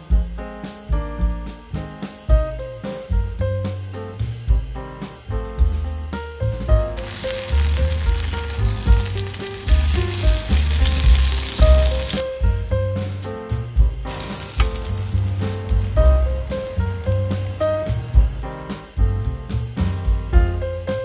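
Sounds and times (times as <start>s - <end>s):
background music with bass line: 0.0s - 21.0s
chicken sizzling in a pan: 6.5s - 12.4s, 14.0s - 19.0s.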